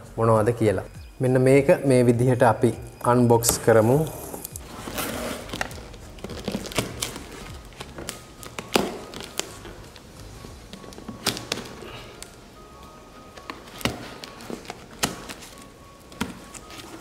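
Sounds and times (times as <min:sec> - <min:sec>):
faint background music: 0:00.0 - 0:17.0
knife cutting packing tape: 0:04.3 - 0:09.7, 0:13.4 - 0:17.0.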